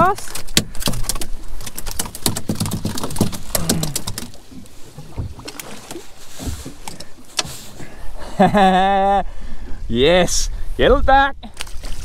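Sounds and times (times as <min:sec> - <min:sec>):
clicks and knocks of handling: 0:00.0 - 0:04.5.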